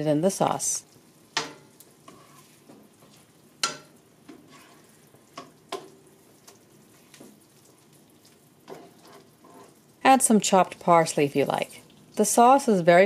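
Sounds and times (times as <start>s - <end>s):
faint low sizzle: 0.0s - 13.0s
metal tongs clicking on pan: 1.4s - 1.9s, 3.6s - 4.4s, 5.4s - 6.6s.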